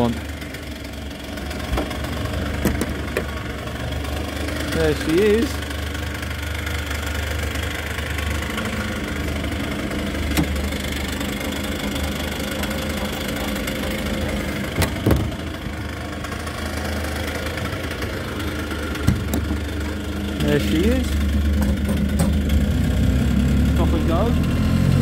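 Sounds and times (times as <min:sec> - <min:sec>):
small engine idling: 0:00.0 - 0:25.0
knocks: 0:21.6 - 0:22.4.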